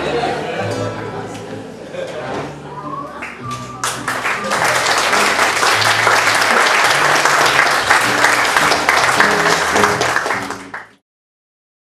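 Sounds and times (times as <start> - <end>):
acoustic guitar and double bass: 0.0 - 10.8
audience applauding: 3.1 - 11.0.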